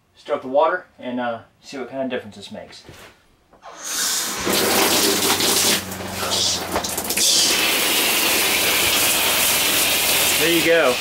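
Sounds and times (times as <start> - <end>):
shower spraying water: 3.6 - 11.0
low hum: 4.5 - 10.4.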